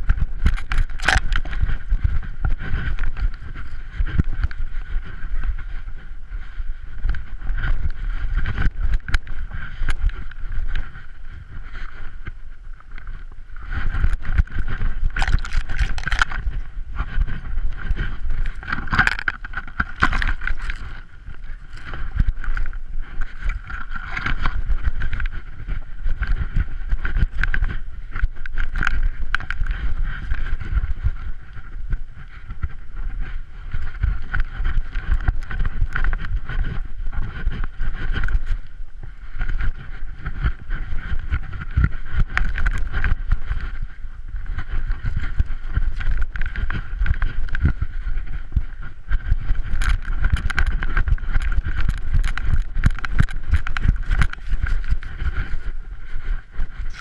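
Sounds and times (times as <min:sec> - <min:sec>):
wind buffeting microphone: 0:00.0 - 0:57.0
camera jolting and knocking: 0:15.2 - 0:16.4.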